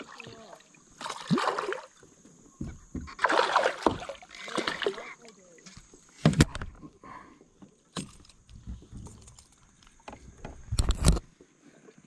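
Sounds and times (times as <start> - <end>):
fish thrashing and splashing: 3.1 - 5.1.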